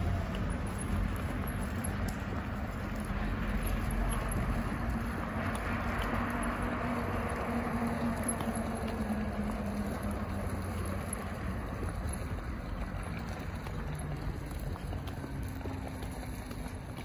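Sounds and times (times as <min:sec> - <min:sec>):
distant road traffic: 0:00.0 - 0:17.0.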